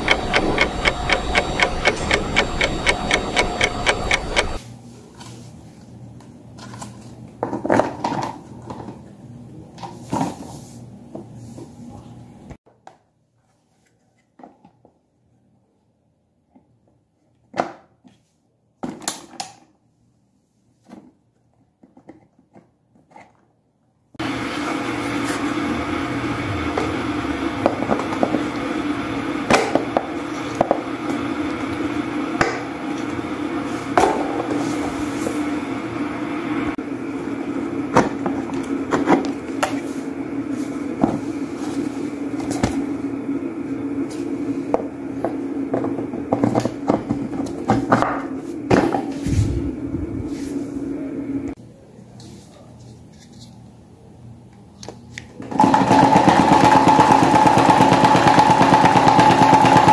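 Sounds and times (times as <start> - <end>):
plastic fan blades clicking: 0.0 - 4.6
steady hum: 0.0 - 4.6, 24.2 - 45.7, 49.0 - 51.6.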